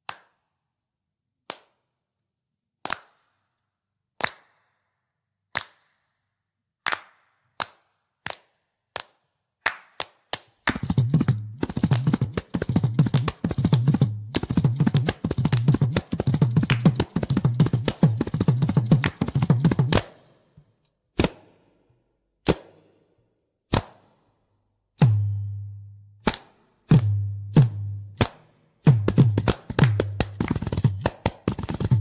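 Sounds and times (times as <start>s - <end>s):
frame drum playing: 10.8s - 20.0s, 26.9s - 32.0s.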